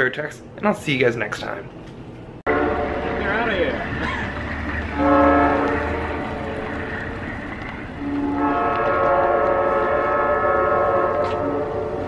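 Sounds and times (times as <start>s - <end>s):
low train rumble: 0.0s - 12.0s
locomotive air horn blasts: 2.5s - 3.6s, 4.9s - 7.2s, 8.0s - 12.0s.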